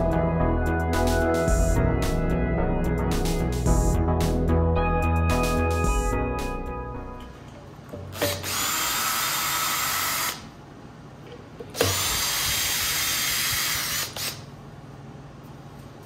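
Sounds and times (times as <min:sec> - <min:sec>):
cordless drill running: 0:08.2 - 0:10.5, 0:11.8 - 0:14.4.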